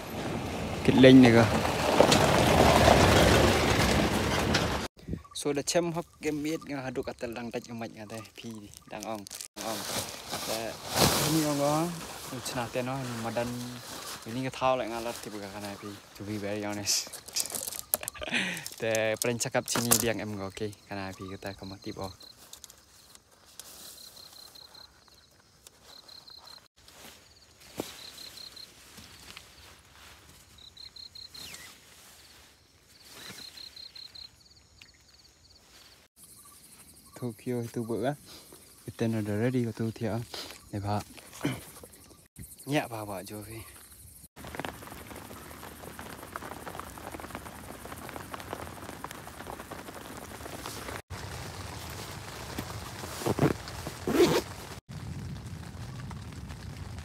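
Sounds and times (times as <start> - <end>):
crickets chirping: 5.0 - 54.4
rain pattering: 11.3 - 22.8, 44.4 - 57.0.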